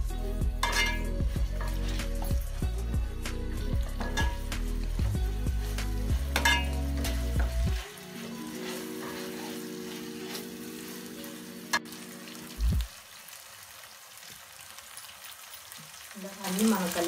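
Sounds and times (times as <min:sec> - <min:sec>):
vegetables sizzling in oil: 0:00.0 - 0:17.0
steel spoon clinking against pan: 0:00.6 - 0:02.4, 0:04.0 - 0:04.7, 0:06.2 - 0:07.6.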